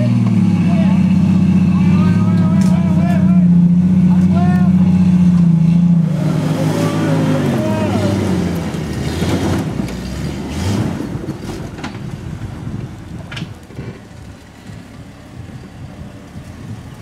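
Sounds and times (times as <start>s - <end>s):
off-road engine under load: 0.0s - 17.0s
wind noise on microphone: 10.6s - 17.0s.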